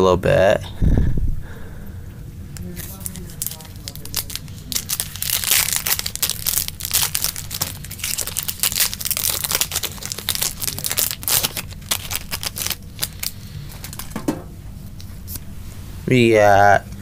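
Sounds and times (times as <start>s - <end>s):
foil wrapper crinkling: 2.6s - 14.3s.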